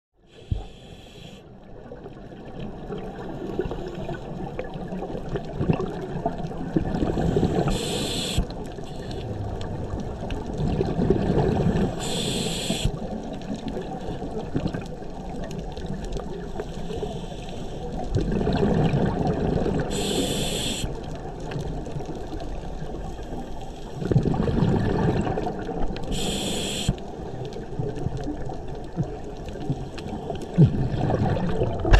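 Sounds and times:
regulator inhalation hiss: 0:00.3 - 0:01.5, 0:07.2 - 0:09.2, 0:11.9 - 0:13.0, 0:16.6 - 0:17.9, 0:19.9 - 0:20.9, 0:26.1 - 0:27.0
exhaled bubbles underwater: 0:00.4 - 0:31.9
low underwater rumble: 0:08.8 - 0:12.0, 0:23.9 - 0:31.9.

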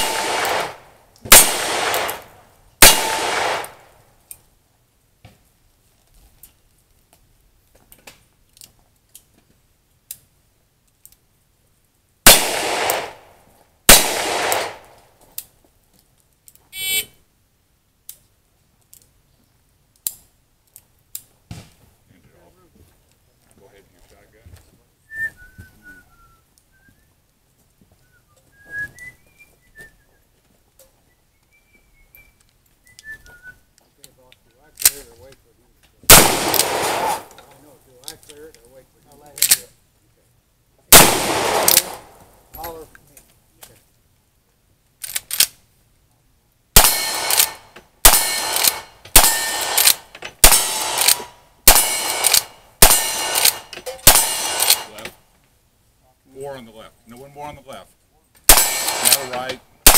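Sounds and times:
rifle shots: 0:00.0 - 0:03.9, 0:12.2 - 0:13.3, 0:13.9 - 0:15.0, 0:36.1 - 0:37.4, 0:40.9 - 0:42.2, 0:46.8 - 0:55.0, 0:58.5 - 0:59.9
whistled notes: 0:25.1 - 0:27.2, 0:28.0 - 0:30.2, 0:31.0 - 0:33.7
gun handling clicks: 0:34.8 - 0:35.1, 0:39.4 - 0:39.7, 0:40.9 - 0:42.1, 0:45.0 - 0:45.6, 0:46.8 - 0:55.1, 0:58.5 - 0:59.9
rifle lever action: 0:58.9 - 0:59.3.

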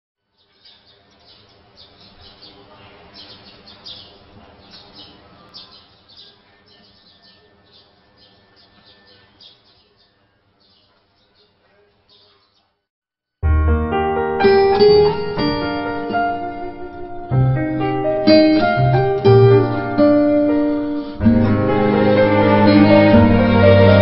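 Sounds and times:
small birds chirping: 0:00.3 - 0:12.9
soft sustained music: 0:13.4 - 0:24.0.

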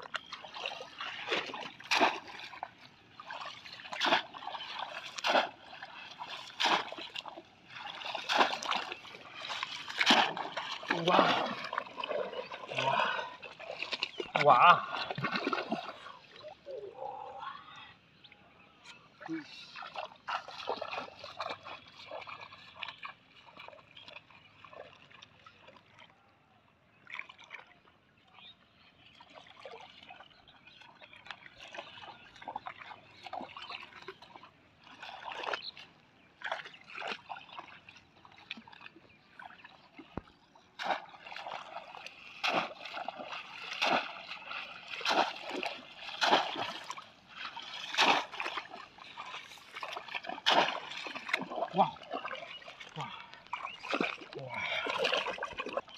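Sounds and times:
shallow water splashing: 0:00.0 - 0:17.4, 0:19.1 - 0:26.0, 0:26.9 - 0:55.9
fish trap plunged into water: 0:44.9 - 0:47.0, 0:47.9 - 0:48.8, 0:49.9 - 0:51.8.

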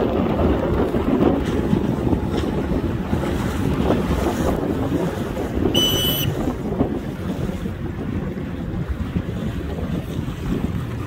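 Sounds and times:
water washing along boat hull: 0:00.0 - 0:11.0
wind buffeting microphone: 0:00.0 - 0:11.0
short high beep: 0:05.7 - 0:06.4.

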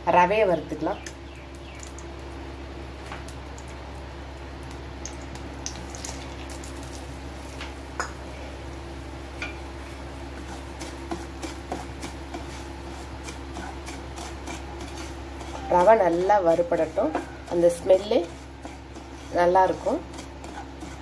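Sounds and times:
steady low hum: 0:00.0 - 0:21.0
spatula scraping a pan: 0:10.4 - 0:21.0.

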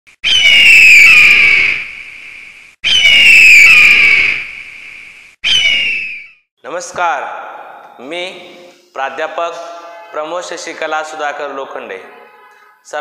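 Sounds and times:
bird of prey screech: 0:00.2 - 0:04.5, 0:05.4 - 0:06.4.

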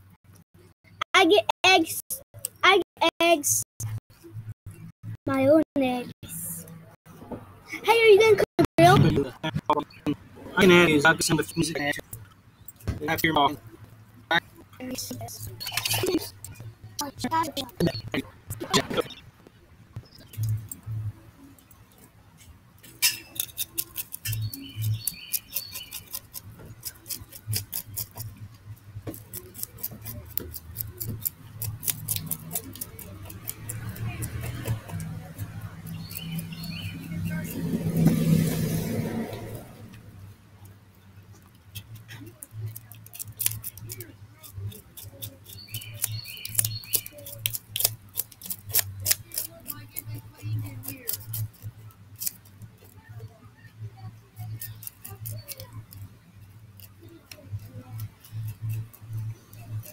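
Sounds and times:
knife scraping fish scales: 0:15.5 - 0:16.6, 0:22.8 - 0:38.7, 0:41.7 - 0:52.9, 0:54.3 - 0:59.9.

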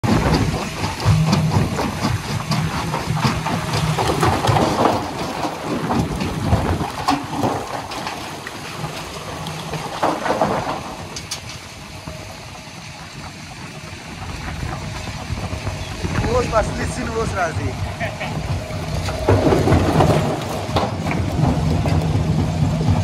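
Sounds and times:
diesel tractor engine running: 0:00.0 - 0:23.0
rocks rattling into steel hopper: 0:00.1 - 0:11.8, 0:18.6 - 0:23.0.

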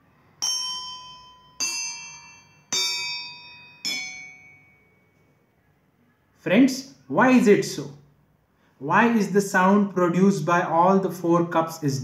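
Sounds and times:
water-filled metal cups ringing: 0:00.4 - 0:05.0.

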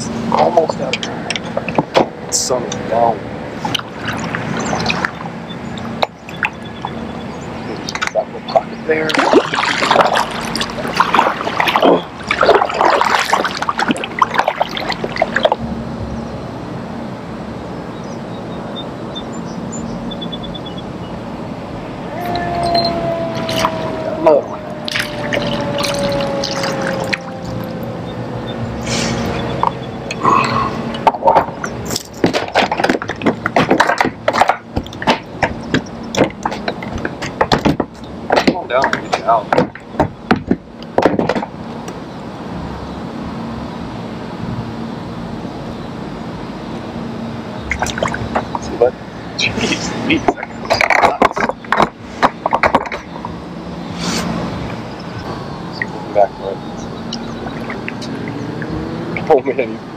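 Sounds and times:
steady background noise: 0:00.0 - 0:59.9
paddle splashing through water: 0:09.0 - 0:15.6, 0:24.9 - 0:27.6, 0:31.2 - 0:35.5
fishing gear clicking and knocking: 0:30.9 - 0:41.6.

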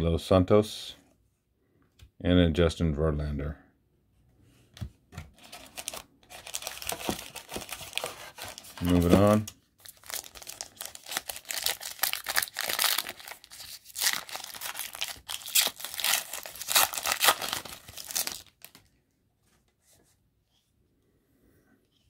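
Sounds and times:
foil wrapper tearing and crinkling: 0:05.4 - 0:18.8.

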